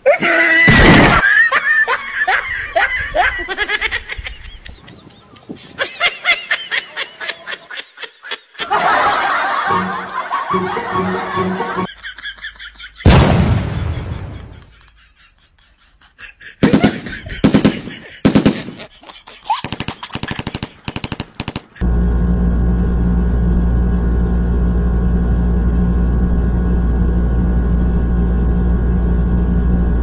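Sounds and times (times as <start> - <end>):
people laughing hard: 0.0 - 20.9
loud crash: 13.1 - 14.6.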